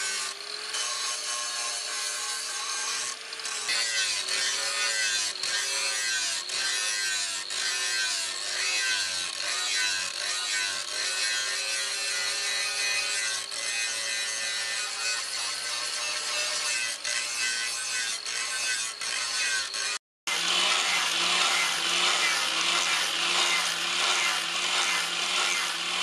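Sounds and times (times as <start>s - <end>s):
angle grinder grinding steel: 0.0s - 26.0s.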